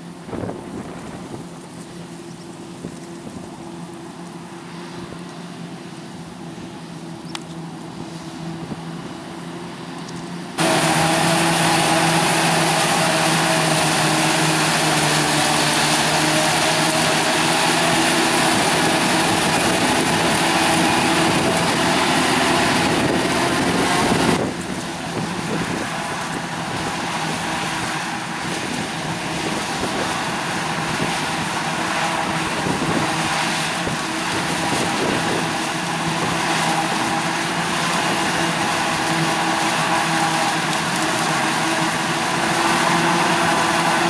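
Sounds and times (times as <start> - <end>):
heavy engine drone: 0.0 - 44.0
rush of chopped crop: 8.8 - 44.0.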